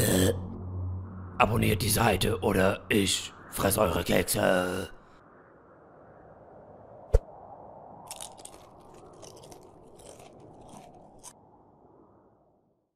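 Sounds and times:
low rushing noise: 0.0 - 9.0
crunchy munching: 8.0 - 11.4.

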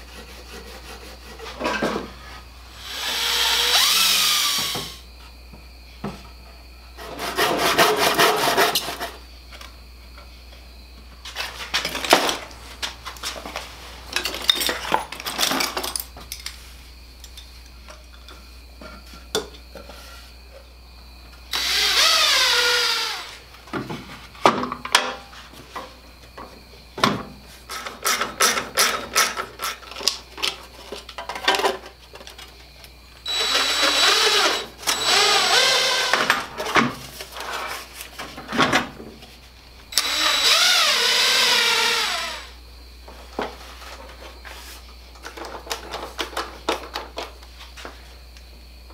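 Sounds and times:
cordless drill boring: 2.8 - 5.0, 21.5 - 23.4, 33.2 - 36.4, 39.9 - 42.6.

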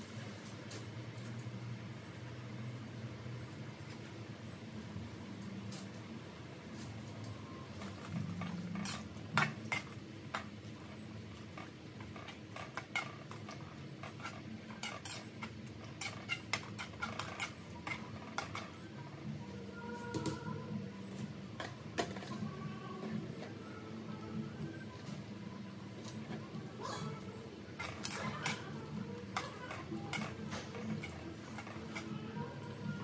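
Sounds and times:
steady low hum: 0.0 - 33.0
metal tongs scraping a wok: 8.2 - 10.0, 12.0 - 18.8, 27.0 - 33.0.

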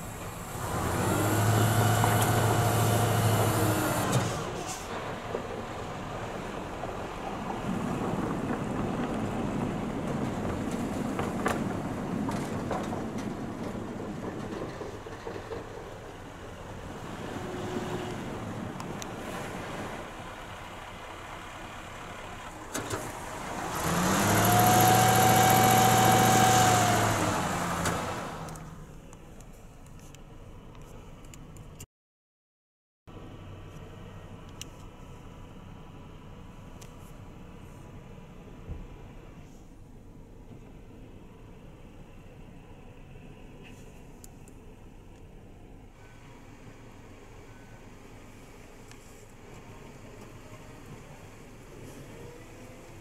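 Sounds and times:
truck whining tone: 0.0 - 5.4, 16.2 - 29.1
uneven truck engine noise: 0.0 - 31.9, 33.1 - 53.0.

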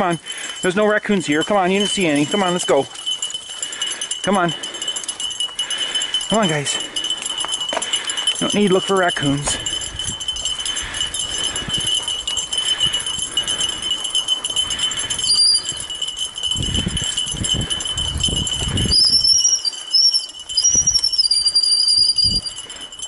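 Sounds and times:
jingling and rattling: 0.0 - 23.0
high wavering squeal: 15.2 - 15.9, 18.8 - 22.6.

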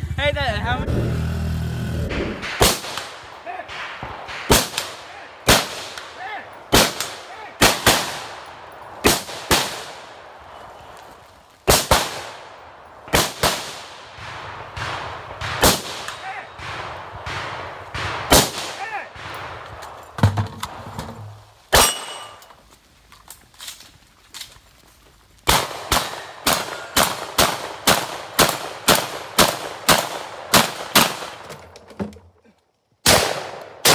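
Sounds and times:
rifle shots with echo: 2.1 - 10.8, 11.6 - 20.8, 21.7 - 22.4, 25.5 - 31.5, 33.0 - 33.9.

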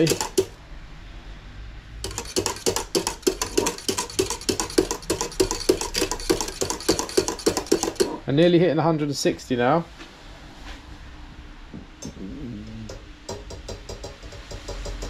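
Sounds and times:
whisk clicking against pan: 0.0 - 0.5, 2.0 - 8.2, 13.3 - 15.0.

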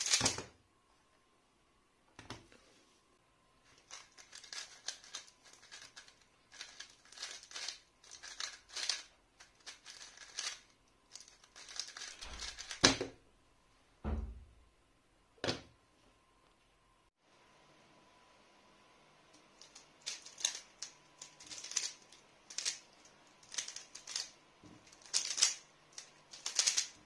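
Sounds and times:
puzzle cube clicking turns: 3.9 - 13.0, 19.6 - 24.3, 24.9 - 27.0
dull thump: 14.0 - 14.6.

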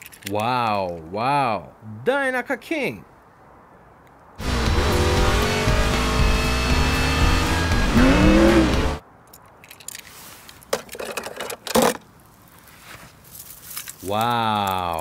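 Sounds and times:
plastic toy car rustling and clicks: 0.0 - 1.0, 9.3 - 12.6, 13.3 - 15.0
film music: 4.4 - 9.0
race car engines: 4.4 - 9.0.

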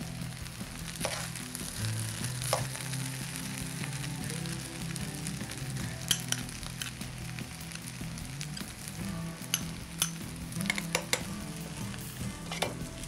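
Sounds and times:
rice sizzling on high flame: 0.0 - 13.0
metal spoon clicking and scraping dish: 6.1 - 6.9, 9.5 - 11.3, 12.5 - 12.8.

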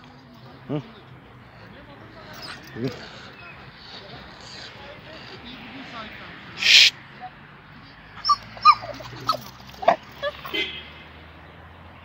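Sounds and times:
dog whimpering: 2.2 - 5.4, 8.2 - 10.0.

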